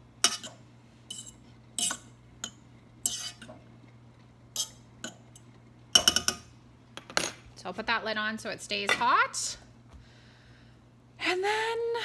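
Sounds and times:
fork scraping a metal saucepan: 0.2 - 3.6.

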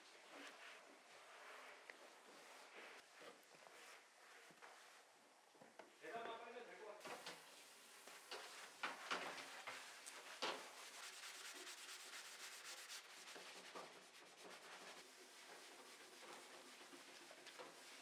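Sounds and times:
scrubbing wet wooden floorboard: 8.2 - 18.0.

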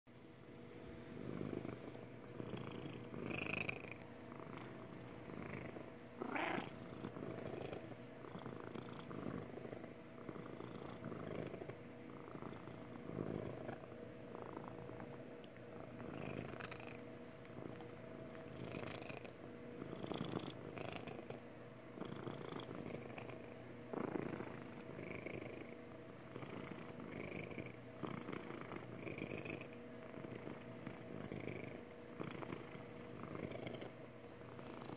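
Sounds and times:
cat purring: 0.7 - 34.9.

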